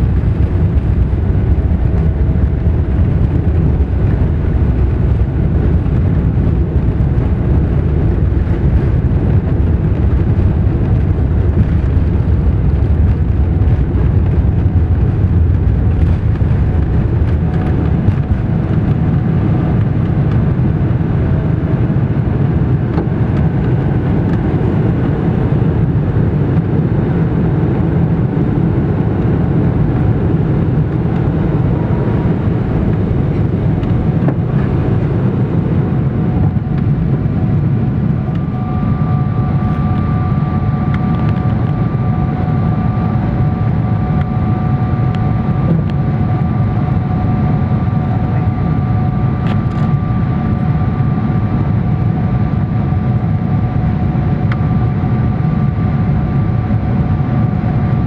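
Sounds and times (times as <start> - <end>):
jet engine cabin roar: 0.0 - 58.0
faint whining tones: 8.2 - 57.8.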